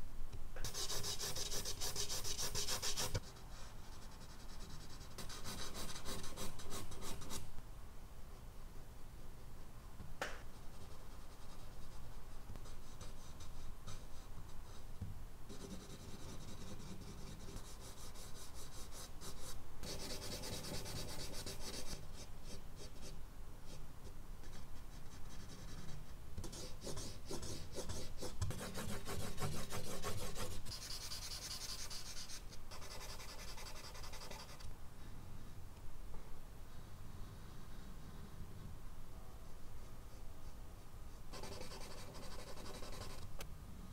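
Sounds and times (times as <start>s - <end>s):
charcoal scratching on paper: 0.6s - 3.2s, 4.2s - 7.4s, 24.5s - 34.6s, 41.3s - 43.2s.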